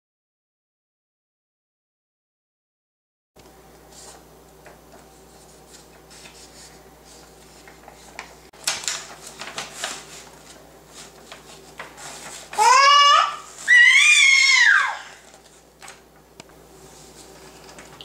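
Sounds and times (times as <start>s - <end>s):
faint steady hum: 3.4s - 18.0s
paper sign rustling: 3.8s - 14.0s, 15.1s - 16.1s, 16.7s - 18.0s.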